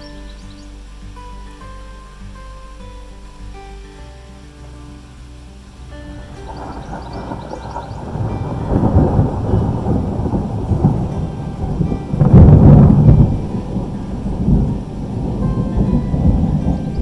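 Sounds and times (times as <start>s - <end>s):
rain falling: 0.0s - 17.0s
thunder rumbling: 6.1s - 17.0s.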